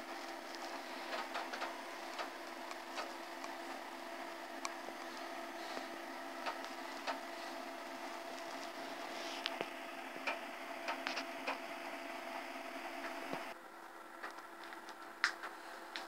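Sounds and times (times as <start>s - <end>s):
computer fan hum: 0.0s - 16.0s
disk drive clicks: 0.5s - 3.8s, 6.4s - 7.3s, 9.4s - 11.7s.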